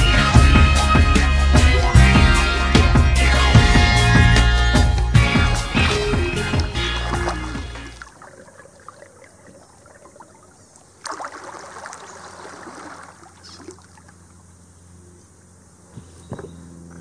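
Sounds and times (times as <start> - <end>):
background music: 0.0 - 8.0
kayak paddle splashing water: 5.7 - 14.4
water trickling and dripping: 6.6 - 14.4.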